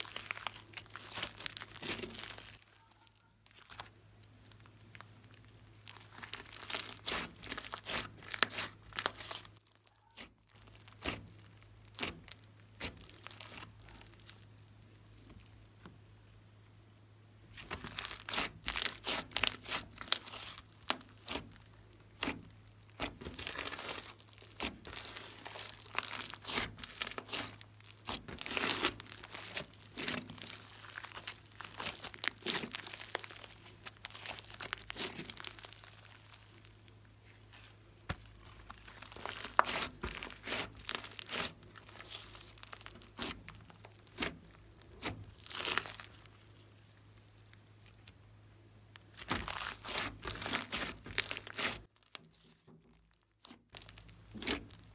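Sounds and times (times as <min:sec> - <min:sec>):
slime crackling and clicking: 0:17.6 - 0:36.7, 0:38.1 - 0:46.4.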